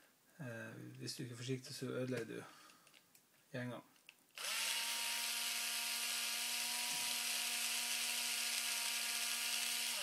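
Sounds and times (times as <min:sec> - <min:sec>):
electric screwdriver motor whine: 0:04.4 - 0:10.0.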